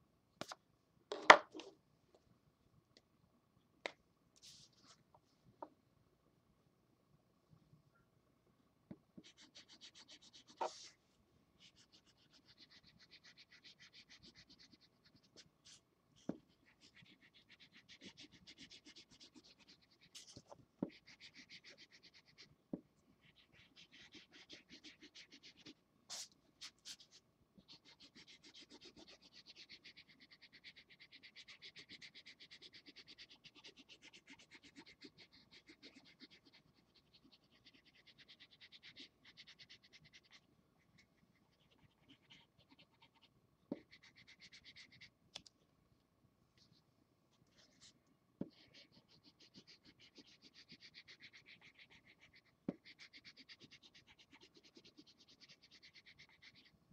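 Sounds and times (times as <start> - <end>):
marker scratching on paper: 9.2 - 11.0, 11.6 - 22.5, 23.3 - 40.4, 41.0 - 45.1, 47.5 - 56.7.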